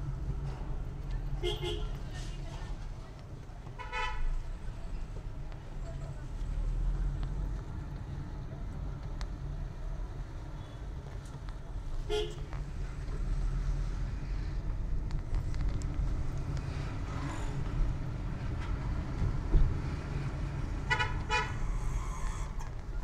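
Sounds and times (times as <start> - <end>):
engine and road rumble: 0.0 - 23.0
vehicle horn toots: 1.4 - 1.9, 12.1 - 12.5, 20.9 - 21.6.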